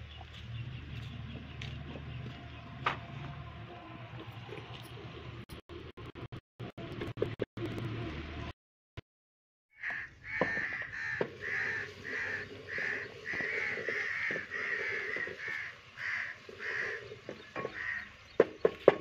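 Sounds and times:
crows cawing: 9.8 - 18.2
sharp knocks: 17.3 - 19.0.

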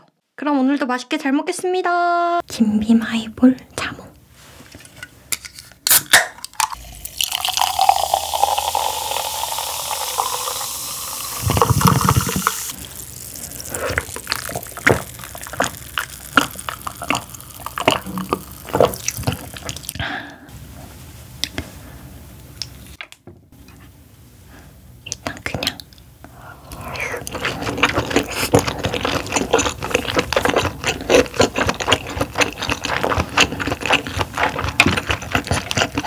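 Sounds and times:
carbonation crackling: 6.6 - 20.0
fizzy drink pouring into glass: 6.6 - 20.0
sipping and swallowing: 6.6 - 20.0, 26.7 - 36.0.

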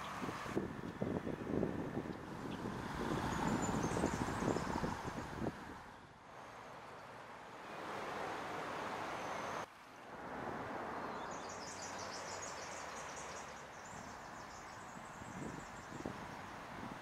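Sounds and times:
wind noise: 0.0 - 6.1, 13.9 - 17.0
rushing floodwater: 6.2 - 15.4.

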